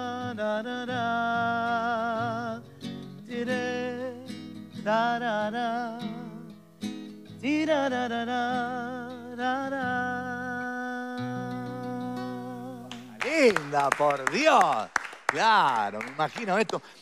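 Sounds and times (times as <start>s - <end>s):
classical guitar chords: 0.0s - 13.2s
man singing with vibrato: 0.0s - 13.7s.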